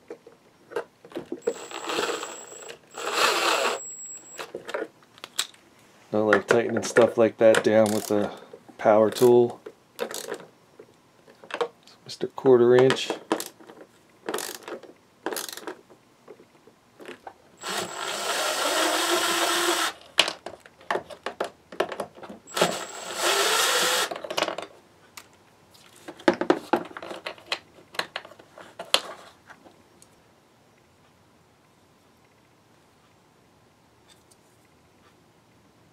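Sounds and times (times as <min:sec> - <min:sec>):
plastic parts clicking and knocking: 0:00.0 - 0:01.6, 0:06.3 - 0:08.5, 0:09.1 - 0:11.8, 0:12.7 - 0:17.9, 0:20.2 - 0:22.8, 0:24.0 - 0:25.4, 0:26.0 - 0:29.6
impact driver whirring: 0:01.4 - 0:04.4, 0:17.6 - 0:20.0, 0:22.5 - 0:24.1
hand ratchet clicking: 0:07.8 - 0:08.3, 0:10.0 - 0:10.4, 0:14.3 - 0:14.7, 0:15.3 - 0:15.7.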